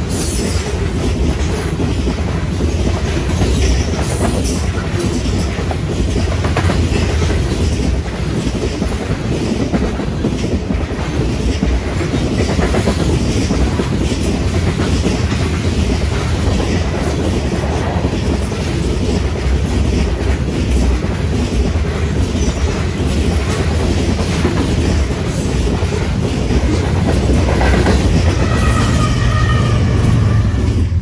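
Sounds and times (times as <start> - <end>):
train wheels clattering: 0.0 - 31.0
locomotive engine hum: 11.7 - 31.0.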